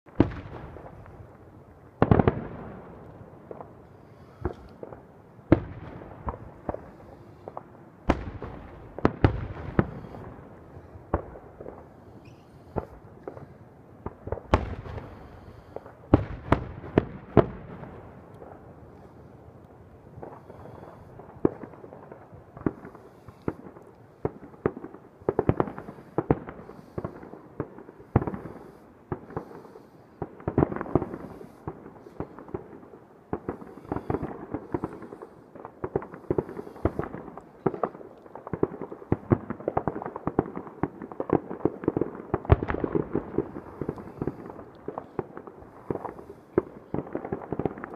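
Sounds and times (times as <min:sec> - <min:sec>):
firework crackle: 0:00.1 - 0:47.9
firework shells bursting: 0:22.6 - 0:47.9.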